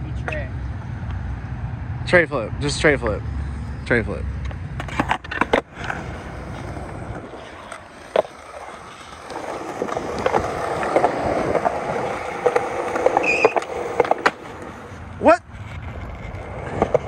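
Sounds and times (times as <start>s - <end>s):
skateboard wheels rolling on concrete: 0.0s - 17.0s
skateboard clacks: 4.4s - 17.0s.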